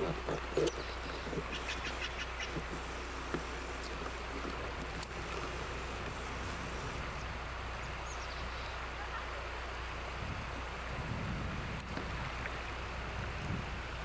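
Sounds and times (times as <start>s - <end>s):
wind rumble on microphone: 0.0s - 8.9s, 9.8s - 14.0s
low electrical hum: 0.0s - 14.0s
steady background hiss: 0.0s - 14.0s.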